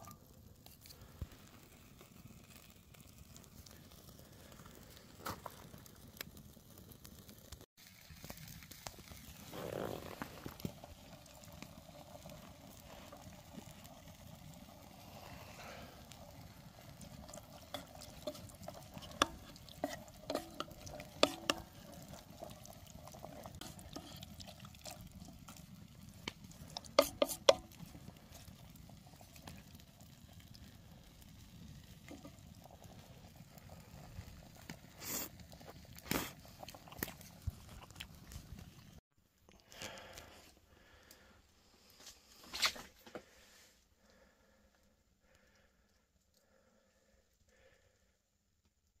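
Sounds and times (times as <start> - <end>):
metal utensil stirring in pot: 16.1 - 28.2
faint steady hiss: 38.3 - 49.0.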